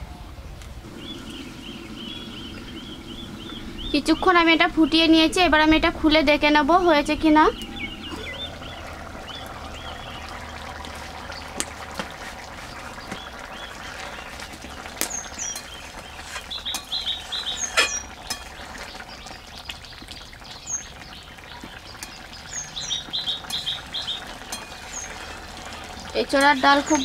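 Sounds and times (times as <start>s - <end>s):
small birds chirping: 0.8s - 27.0s
spatula clinking on metal pan: 16.7s - 17.0s, 17.6s - 18.6s, 24.5s - 25.4s.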